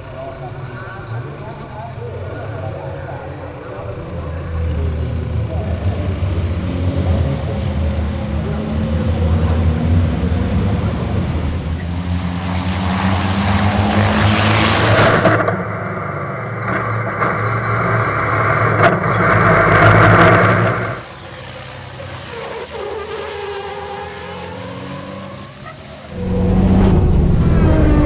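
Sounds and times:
racing truck engines passing: 0.0s - 17.1s, 17.9s - 28.0s
muffled truck engine in cab: 0.0s - 28.0s.

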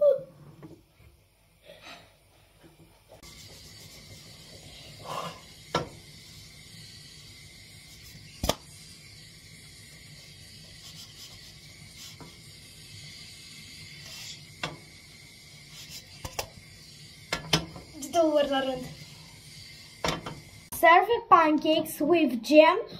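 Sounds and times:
pancake frying hiss: 0.6s - 20.8s
frying pan knocking on stove: 5.7s - 6.0s, 17.3s - 17.9s, 20.0s - 20.4s.

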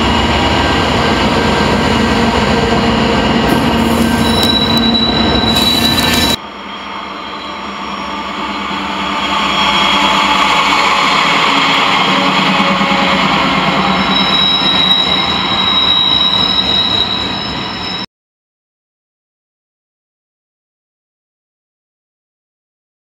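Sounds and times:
freight train wheels rumbling: 0.0s - 18.0s
high wheel squeal: 2.9s - 18.1s.

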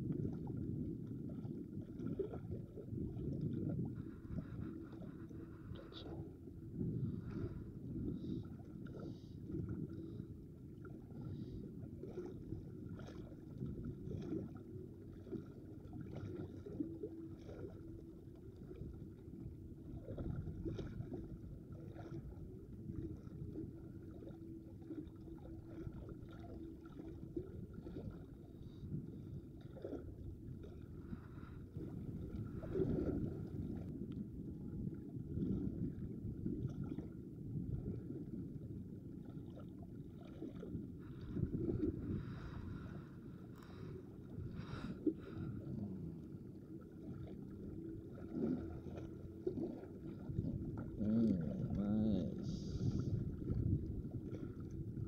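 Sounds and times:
water lapping against rocks: 0.0s - 34.2s, 39.2s - 55.0s
faint steady hum: 0.0s - 55.0s
wind rumbling on microphone: 0.0s - 55.0s.

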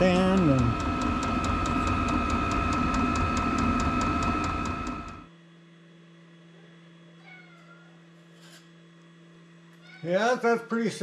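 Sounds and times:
rapid even ticking: 0.0s - 5.3s
heater fan whine and rumble: 0.0s - 11.0s
faint cat meow: 7.0s - 8.1s, 9.8s - 10.2s.

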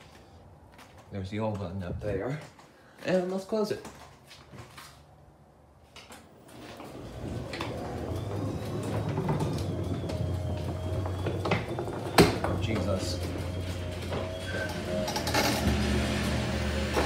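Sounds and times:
garage door rolling closed: 6.2s - 17.0s
garage door opener motor humming: 6.4s - 17.0s.

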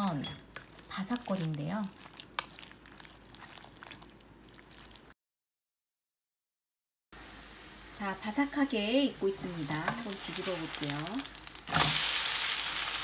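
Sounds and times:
hand squelching batter: 0.5s - 5.1s
batter sizzling in a pan: 7.2s - 13.0s.

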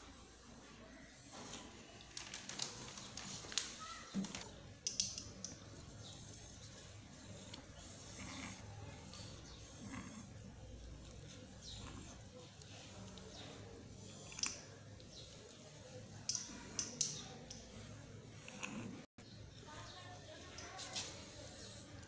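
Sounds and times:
breathy hissing: 5.9s - 10.4s.

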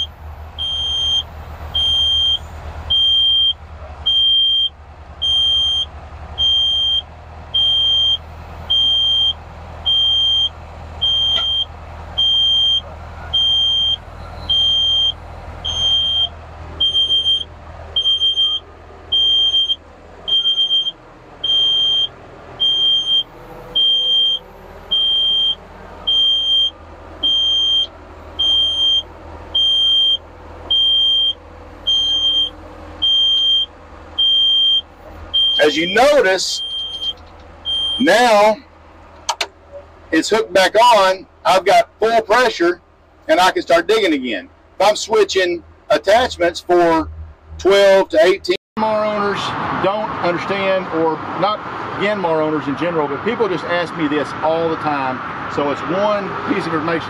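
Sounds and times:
excavator warning beeper: 0.0s - 38.6s
diesel engine running: 0.0s - 57.0s
hydraulics whining: 0.0s - 57.0s.

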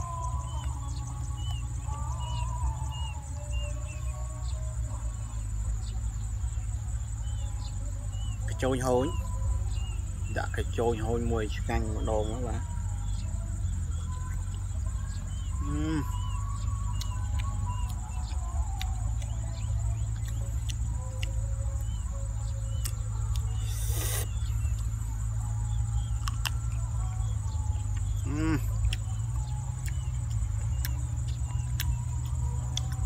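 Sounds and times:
small chirps: 12.0s - 33.0s
chewing with mouth clicks: 16.8s - 22.0s, 26.0s - 33.0s
brief hiss: 23.6s - 24.4s.

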